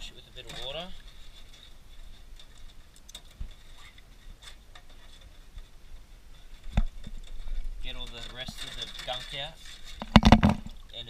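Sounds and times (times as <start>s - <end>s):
crab shell clicks and knocks: 10.0s - 10.7s.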